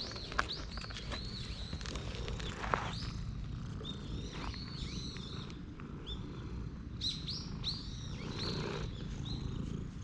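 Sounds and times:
small birds chirping: 0.0s - 10.0s.

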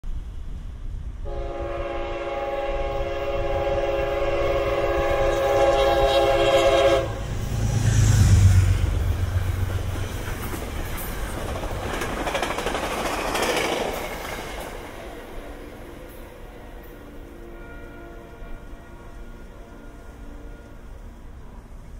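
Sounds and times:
train passing rumble and rattle: 0.0s - 21.9s
train horn chord: 1.2s - 8.7s, 15.8s - 21.6s.

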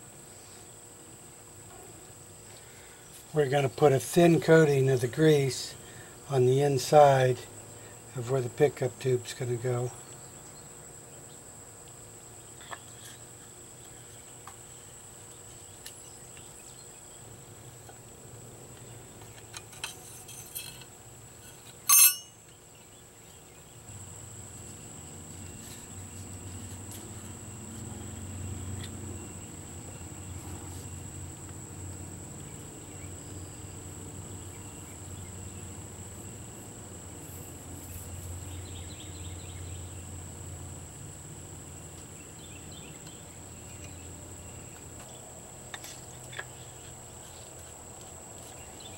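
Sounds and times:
insects droning: 0.0s - 48.9s.

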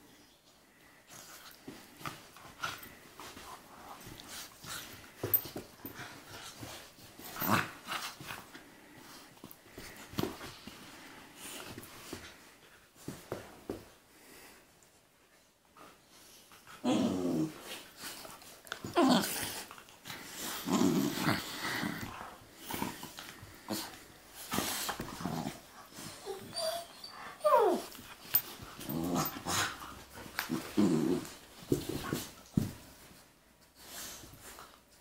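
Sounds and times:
dogs play growling: 0.8s - 14.5s, 16.2s - 33.2s
dog whining: 26.0s - 28.0s.

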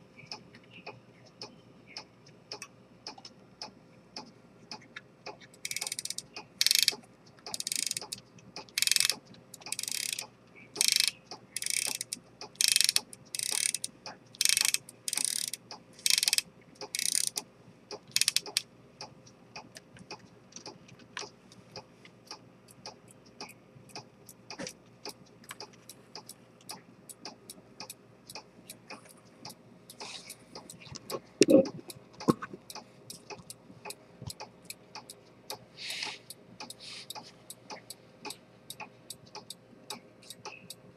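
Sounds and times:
watch ticking quickly: 4.2s - 40.8s
watch winding ratchet clicks: 5.6s - 17.4s, 18.1s - 18.6s.

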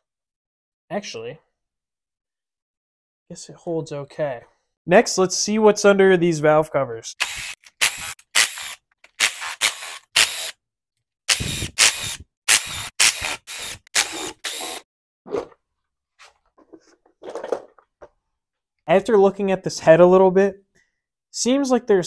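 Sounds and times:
cordless power driver spinning bolts: 7.2s - 10.5s, 11.3s - 14.8s.

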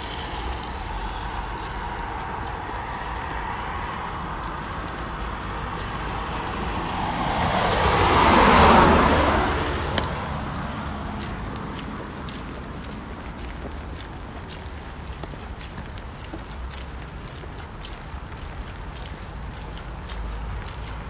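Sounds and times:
car tyres hissing on wet road: 0.0s - 12.3s.

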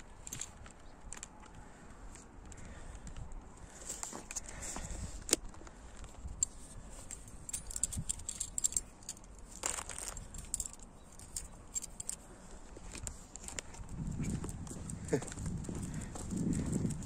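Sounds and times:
metallic jingling and clicking: 0.2s - 1.4s, 6.0s - 17.0s.

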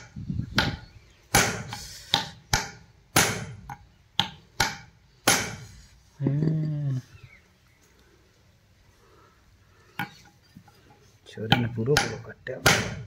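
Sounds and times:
low drawn-out vocal call: 6.2s - 7.4s
hammer striking metal: 11.5s - 13.0s.

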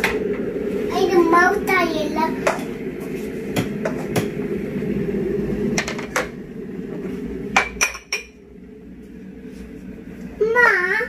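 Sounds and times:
low hum: 0.0s - 11.0s
mugs and spoon clinking: 7.6s - 8.4s.

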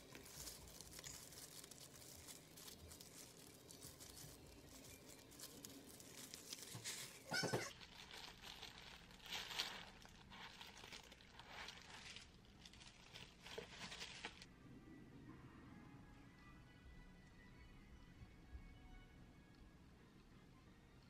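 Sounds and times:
plastic gloves and bag crinkling: 0.0s - 14.5s
short plastic squeak: 7.2s - 7.7s.

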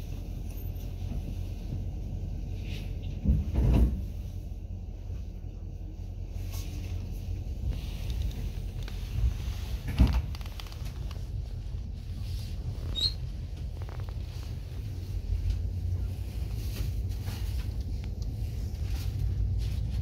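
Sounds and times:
train car rumbling: 0.0s - 20.0s
heavy train clunk: 3.1s - 4.3s.

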